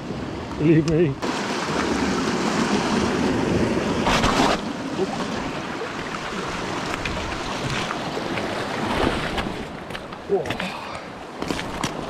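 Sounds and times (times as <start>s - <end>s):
surf washing among rocks: 1.2s - 12.0s.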